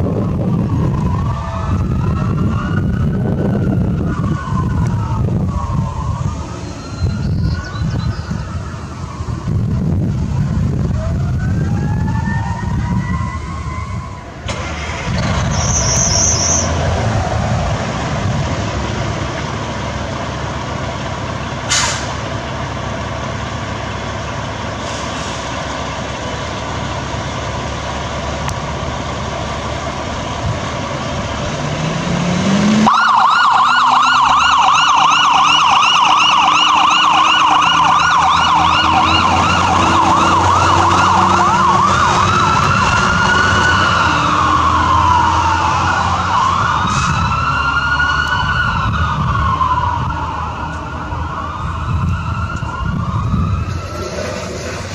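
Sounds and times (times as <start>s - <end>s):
rising siren wail: 0.0s - 20.6s, 30.4s - 54.9s
fire engine rumbling: 0.0s - 54.9s
fast electronic siren yelp: 0.1s - 9.7s, 32.8s - 54.0s.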